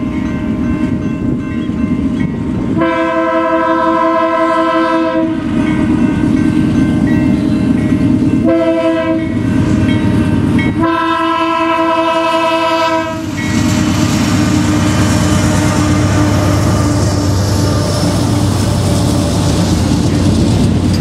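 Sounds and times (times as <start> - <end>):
locomotive engine and wheel noise: 0.0 - 21.0
locomotive air horn blasts: 2.8 - 5.7, 8.4 - 9.4, 10.2 - 13.4, 14.2 - 17.9.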